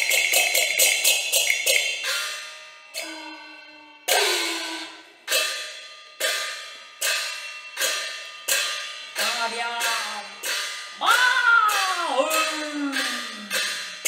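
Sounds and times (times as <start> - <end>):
person declaiming loudly: 11.0 - 13.4.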